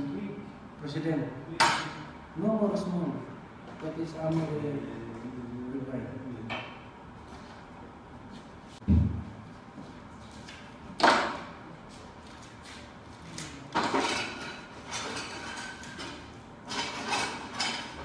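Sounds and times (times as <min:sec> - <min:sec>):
sharp knock: 0:08.8 - 0:09.3.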